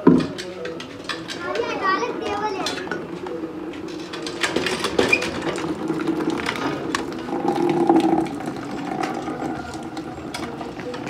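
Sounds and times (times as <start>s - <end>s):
metal bowls clinking: 2.6s - 11.0s
water pouring and splashing: 5.3s - 11.0s.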